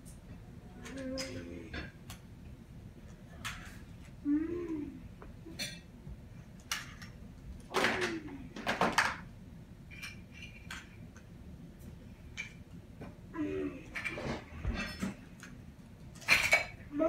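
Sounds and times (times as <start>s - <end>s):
child play noises: 0.4s - 1.8s
toys clattering on floor: 6.6s - 9.3s, 14.0s - 16.8s.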